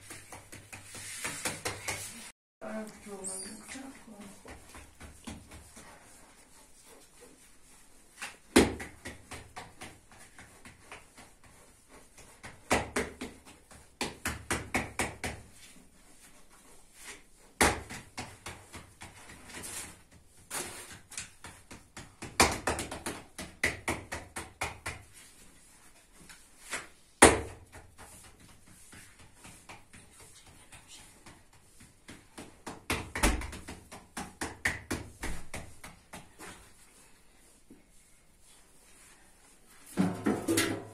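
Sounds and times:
hands slapping dough: 0.0 - 2.3, 4.2 - 36.9.

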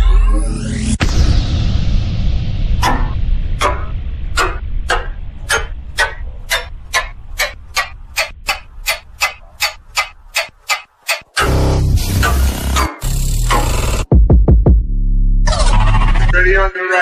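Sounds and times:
low bass rumble: 0.0 - 10.4, 11.4 - 16.4
clock-like ticks: 2.8 - 14.1.

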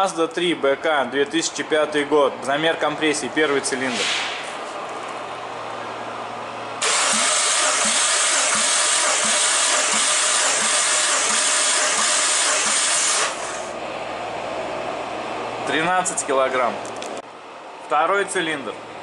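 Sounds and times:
engine cranking on starter: 6.8 - 13.7
pulsing hiss of air: 6.8 - 13.8.

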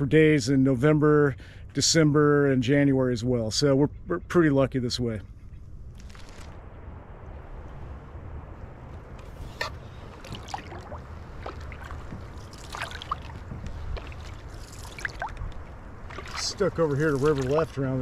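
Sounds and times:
steady low rumble: 0.0 - 18.0
paddle pulling through water: 9.2 - 18.0
splashes and drips: 9.6 - 18.0.

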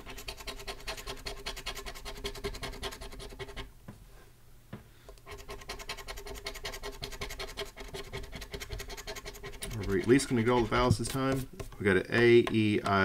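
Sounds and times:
coin scratching lottery ticket: 0.0 - 3.7, 5.3 - 11.5.

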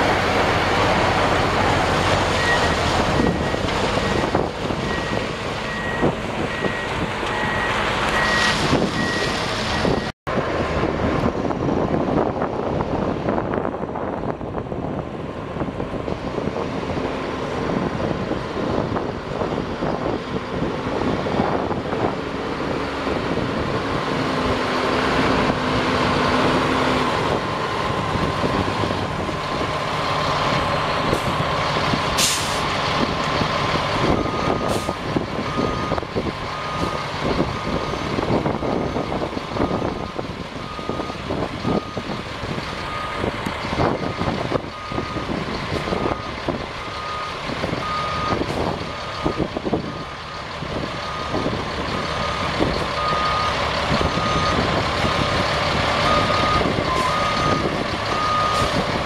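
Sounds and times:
diesel truck engine running: 0.0 - 59.0
air brake hiss: 32.2 - 32.7.

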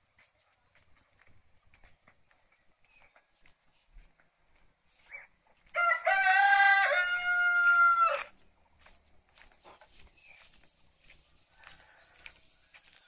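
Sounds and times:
rooster crowing: 5.7 - 8.3.

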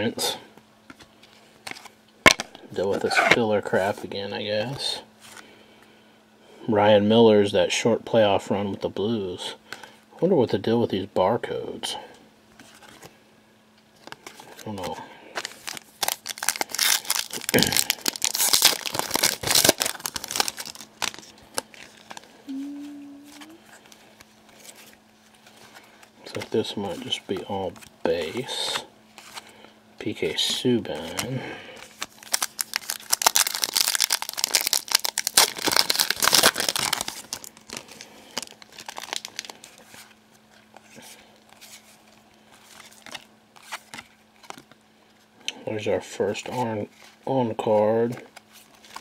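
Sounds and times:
foil wrapper crinkling and tearing: 14.4 - 22.3, 31.0 - 40.2.

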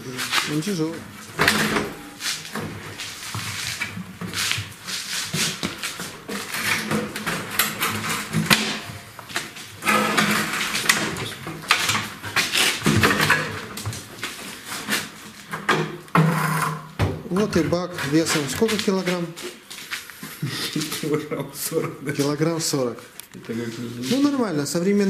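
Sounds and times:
metal scraping on metal: 9.8 - 11.2.

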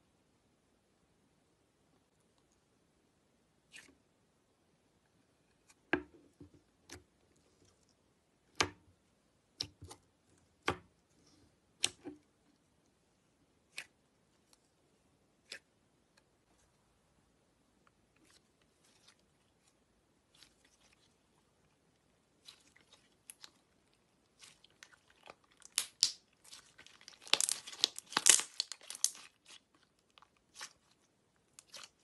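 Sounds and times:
slime popping and clicking: 25.6 - 26.2, 27.2 - 29.2.

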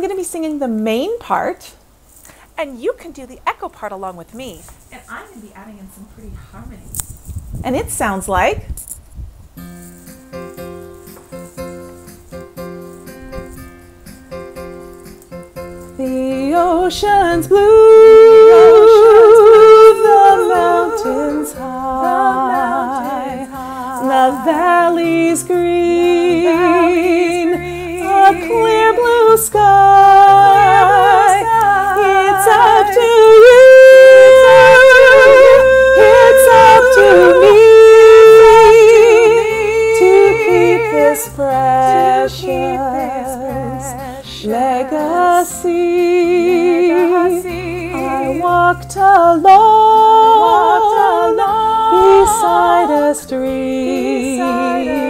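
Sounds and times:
woman singing layered harmonies: 16.0 - 55.0.

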